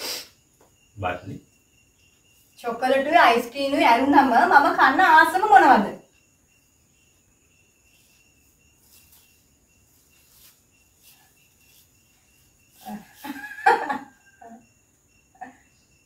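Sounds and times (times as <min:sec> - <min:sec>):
soft rustles: 0:07.8 - 0:13.7.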